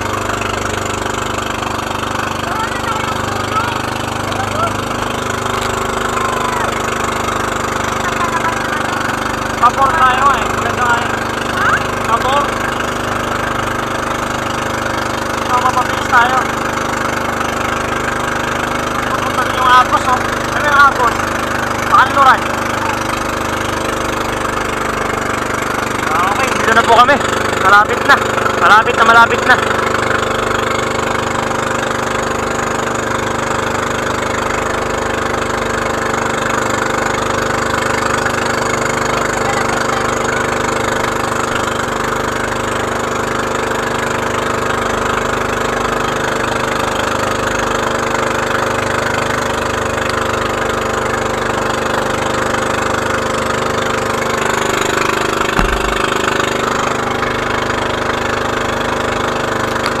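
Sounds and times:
boat engine running: 0.0s - 60.0s
thump: 55.5s - 56.3s.

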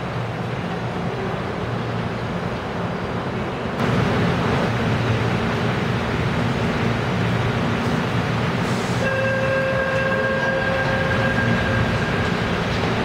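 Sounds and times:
electric train rumbling: 0.0s - 13.0s.

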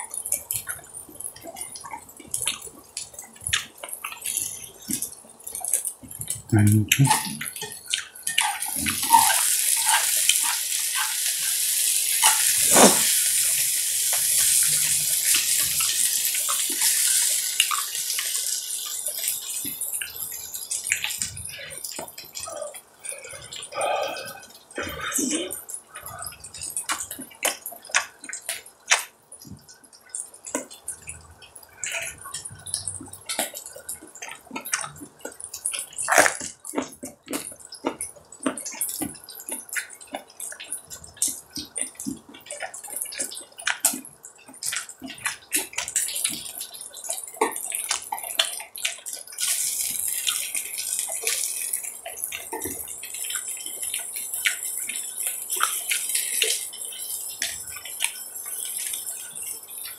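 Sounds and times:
meat sizzling on a griddle: 8.3s - 21.2s.

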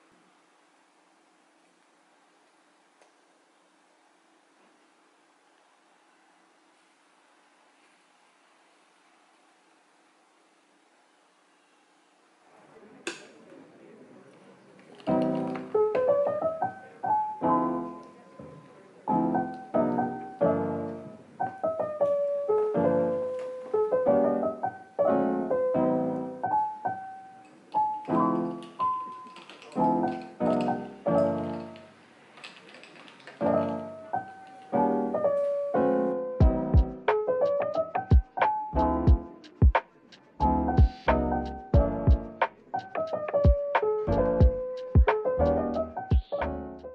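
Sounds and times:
solo piano melody: 15.0s - 32.0s, 33.4s - 46.9s
drum beat: 36.4s - 37.0s, 38.1s - 38.4s, 39.1s - 39.8s, 40.8s - 41.1s, 41.8s - 42.3s, 43.4s - 43.7s, 44.4s - 45.2s.

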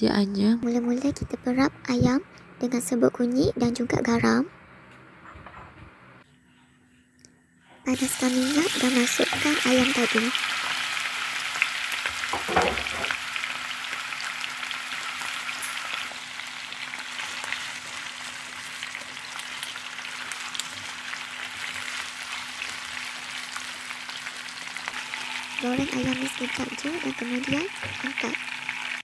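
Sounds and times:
chicken sizzling in hot oil: 7.9s - 29.0s.

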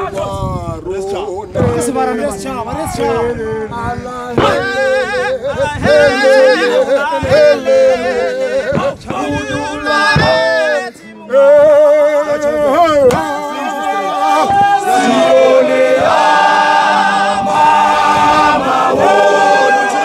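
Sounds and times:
men's choir singing a cappella: 4.3s - 20.0s.

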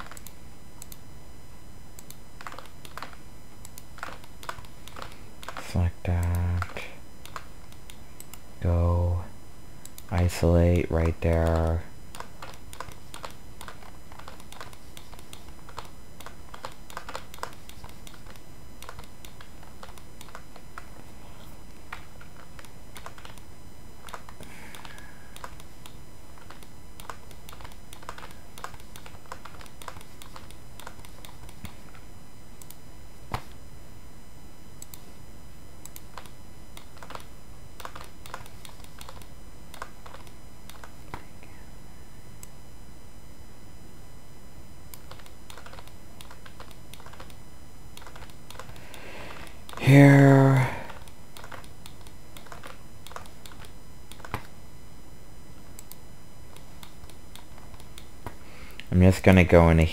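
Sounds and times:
keyboard and mouse clicks: 0.0s - 1.0s, 2.0s - 8.4s, 9.8s - 21.0s, 21.8s - 32.0s, 35.8s - 41.3s, 44.9s - 49.8s, 50.9s - 54.6s, 55.7s - 58.9s.

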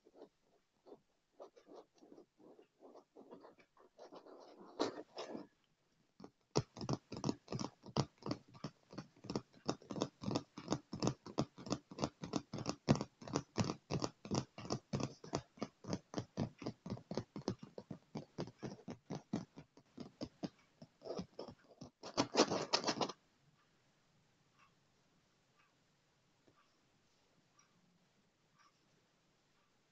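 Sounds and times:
fingertips tapping on leather: 6.2s - 23.1s
rapid scratching on leather: 6.6s - 20.4s, 21.0s - 23.1s.

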